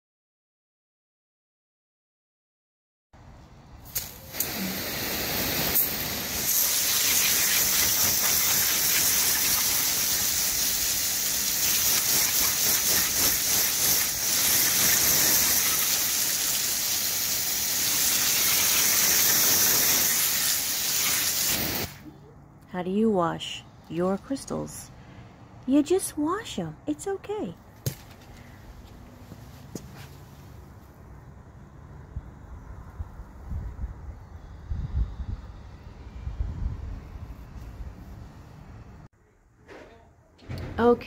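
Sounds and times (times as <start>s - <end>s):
hose water spraying: 3.8s - 22.0s.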